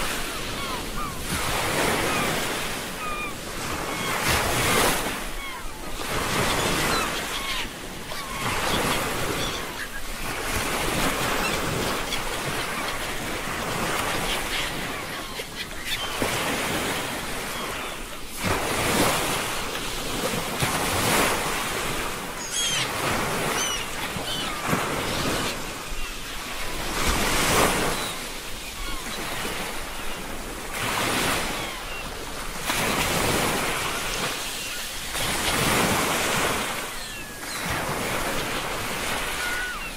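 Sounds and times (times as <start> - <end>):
ocean waves washing in: 0.0 - 15.0.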